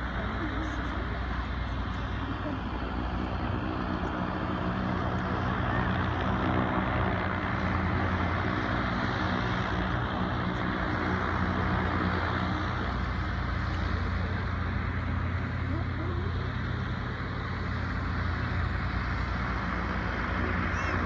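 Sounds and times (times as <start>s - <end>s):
airship engines and propellers droning: 0.0s - 21.0s.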